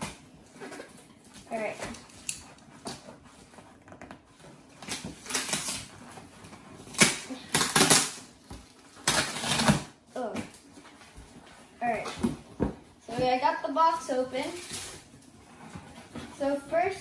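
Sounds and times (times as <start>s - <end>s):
packing tape ripping: 4.8s - 10.0s.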